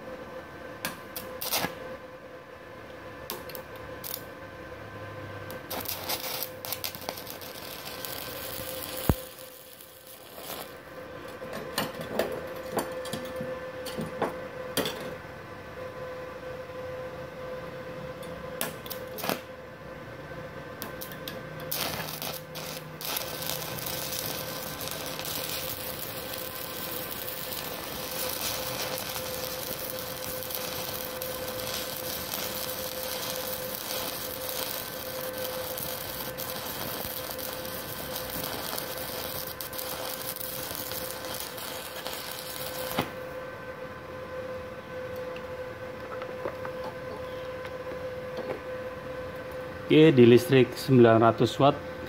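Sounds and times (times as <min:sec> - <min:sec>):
steady whine: 0:00.0 - 0:52.0
welding arc crackling: 0:01.1 - 0:01.8, 0:03.3 - 0:04.3, 0:05.5 - 0:10.8, 0:18.6 - 0:19.5, 0:20.8 - 0:43.3.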